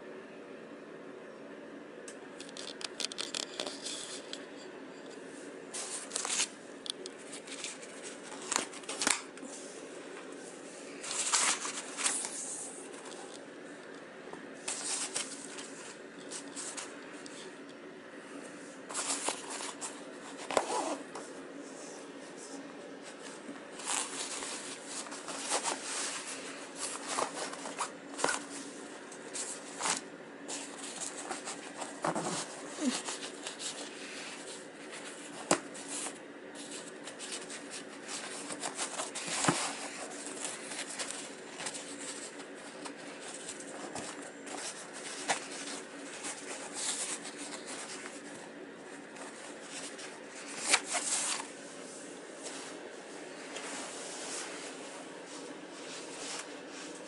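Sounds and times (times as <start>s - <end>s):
fabric rustling: 22.4s - 57.0s.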